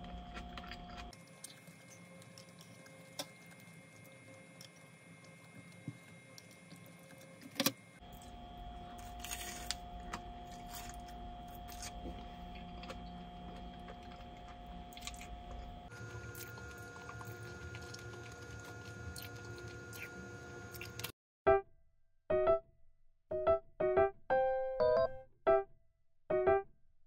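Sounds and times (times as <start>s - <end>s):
faint steady hum: 0.0s - 21.1s.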